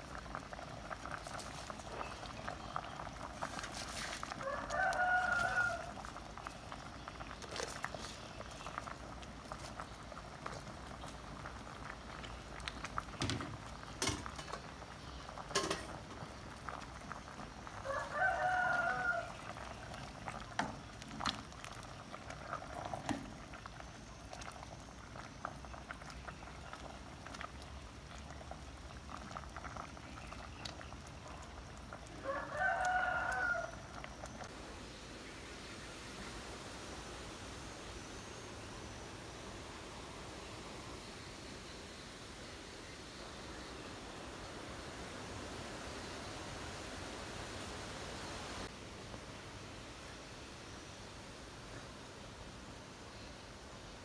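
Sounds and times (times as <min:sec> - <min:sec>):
curry bubbling in a pot: 0:00.0 - 0:34.5
rooster crowing: 0:04.4 - 0:06.1, 0:17.8 - 0:19.6, 0:32.2 - 0:34.0.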